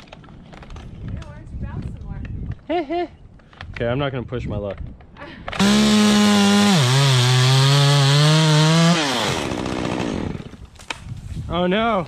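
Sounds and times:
chainsaw cutting through wood: 5.6 - 10.7.

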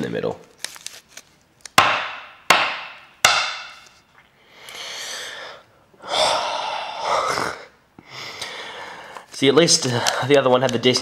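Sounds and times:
man breathing: 4.3 - 9.4.

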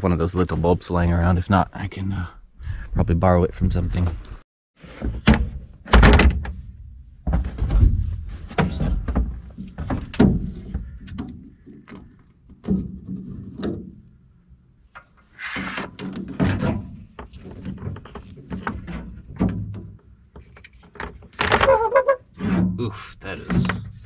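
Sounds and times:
rummaging through drawers: 7.3 - 14.0, 15.0 - 24.0.

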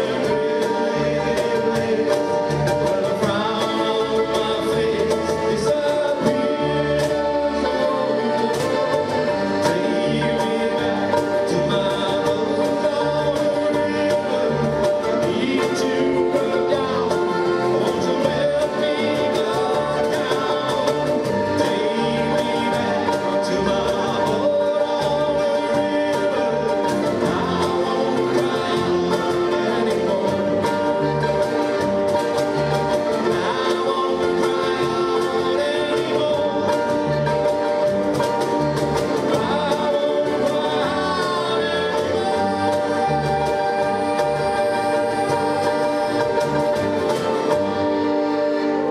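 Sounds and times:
accordion chords: 0.0 - 48.9
cajon beat: 0.0 - 48.9
mandolin: 0.0 - 48.9
strummed acoustic guitar: 0.0 - 48.9.

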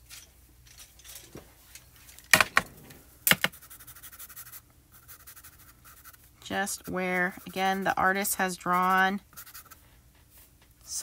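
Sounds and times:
chalk pencil scratching on card: 3.5 - 9.8.

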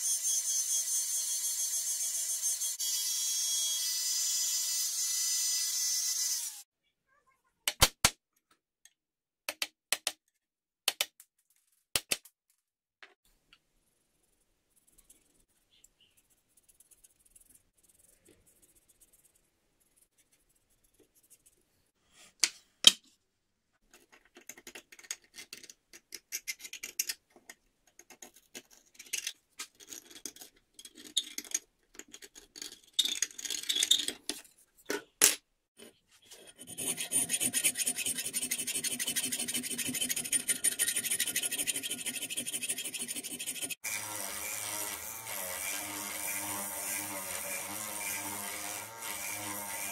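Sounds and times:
hand tool scraping steel blade: 36.2 - 49.9
power tool running: 43.8 - 49.9
spindle sander running: 43.8 - 49.9.

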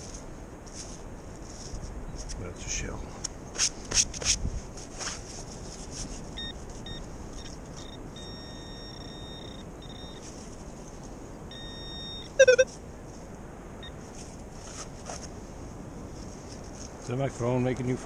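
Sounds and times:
metal detector beeps: 6.4 - 10.3, 11.5 - 12.7
warbling chirp: 8.2 - 10.2, 11.5 - 12.7.

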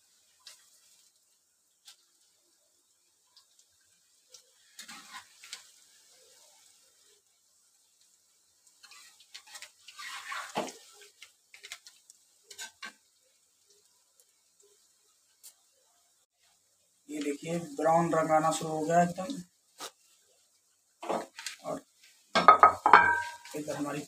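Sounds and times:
deep-frying sizzle: 0.0 - 24.0
metal spatula scraping pan: 4.7 - 5.8, 8.8 - 11.0, 22.4 - 23.7.

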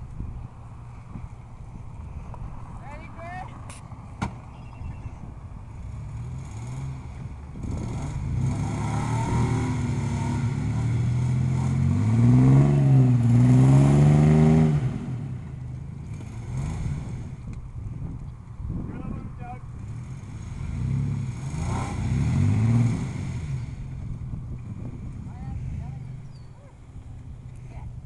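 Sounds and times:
car engine revving hard: 6.2 - 15.4, 19.8 - 23.9.

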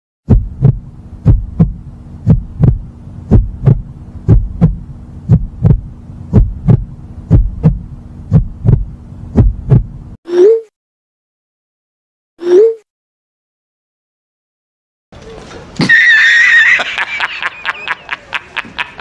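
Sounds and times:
heartbeat thumps: 0.2 - 10.2
low steady hum: 0.3 - 10.2.

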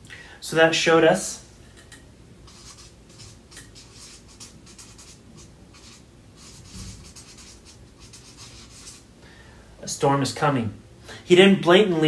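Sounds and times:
pen scratching on paper: 2.5 - 9.0.

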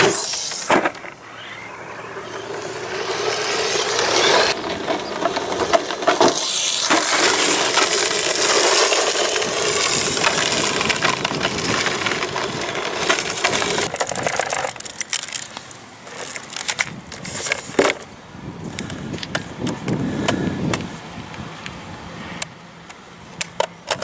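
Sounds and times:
tyres scrabbling over gravel: 0.0 - 21.5.

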